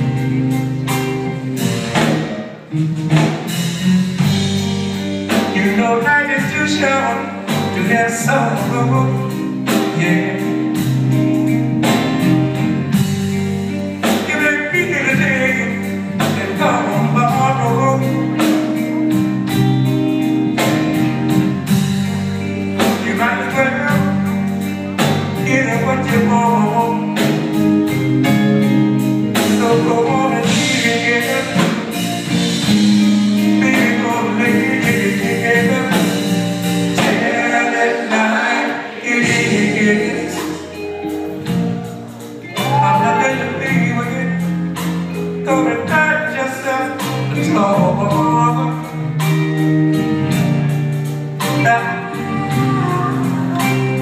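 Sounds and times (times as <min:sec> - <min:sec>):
live band playing soul ballad: 0:00.0 - 0:54.0
steady drum beat: 0:00.0 - 0:54.0
person singing lead: 0:37.2 - 0:44.5, 0:51.6 - 0:54.0.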